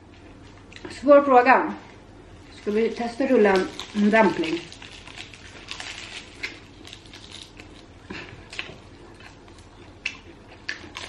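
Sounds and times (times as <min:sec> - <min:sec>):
crisp chewing crunches: 0:02.4 - 0:11.0.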